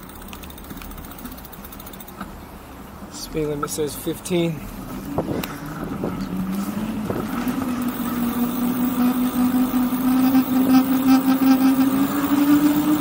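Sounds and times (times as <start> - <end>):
electric motor whining: 6.1 - 13.0.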